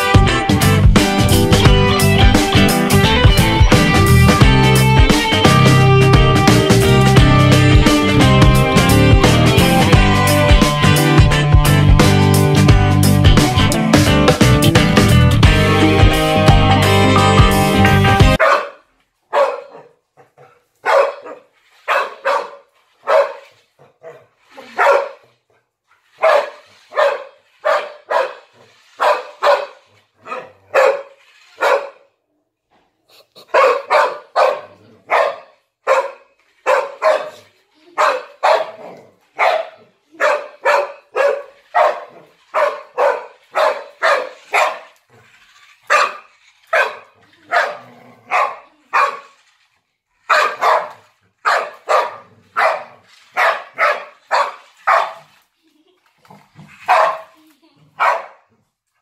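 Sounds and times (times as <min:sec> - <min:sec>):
dog barking: 0:18.4 - 0:25.3, 0:26.1 - 0:32.1, 0:33.4 - 0:37.4, 0:38.0 - 0:45.0, 0:45.9 - 0:49.4, 0:50.3 - 0:55.3, 0:56.9 - 0:57.4, 0:58.0 - 0:58.5.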